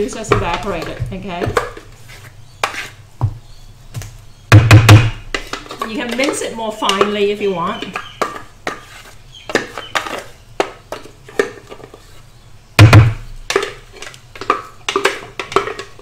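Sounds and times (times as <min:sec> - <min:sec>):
wooden spoon knocking on steel jug: 0:00.0 - 0:01.8.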